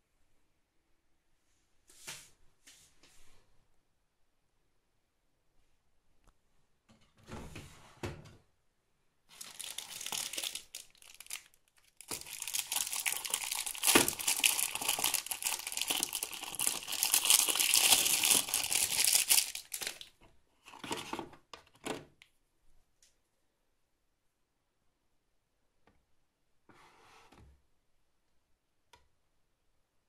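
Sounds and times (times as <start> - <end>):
plastic wrapper crinkling: 9.3 - 20.2.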